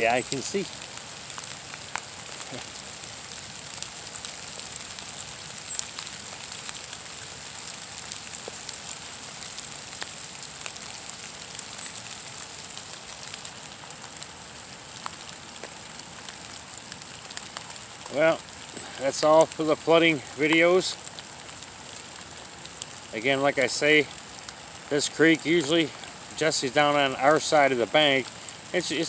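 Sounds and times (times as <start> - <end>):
rain on leaves: 0.0 - 29.0
raindrop ticks: 0.1 - 29.0.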